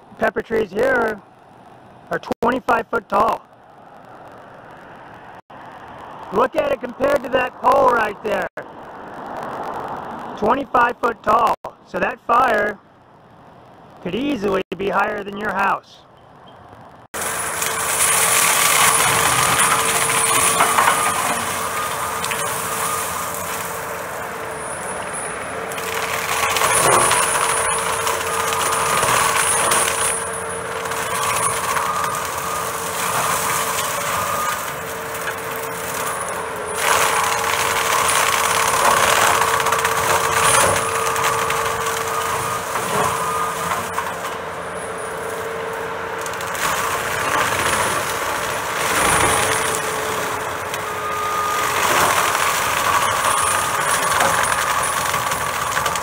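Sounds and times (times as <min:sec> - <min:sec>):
mulcher drum whining: 0:16.3 - 0:56.0.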